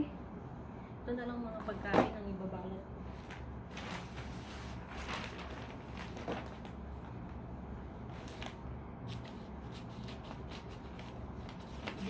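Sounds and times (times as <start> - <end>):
wrapping paper rustling: 3.2 - 7.1, 8.1 - 12.0.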